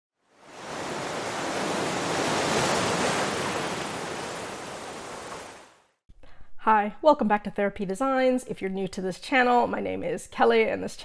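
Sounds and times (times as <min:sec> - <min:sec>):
ocean waves rushing: 0:00.4 - 0:05.8.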